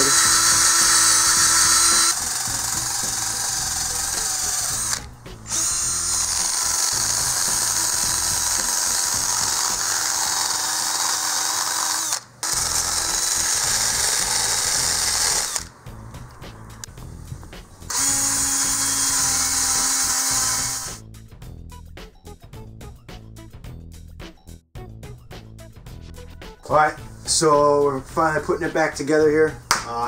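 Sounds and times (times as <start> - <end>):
power drill whining: 0.0 - 15.7, 17.9 - 21.0.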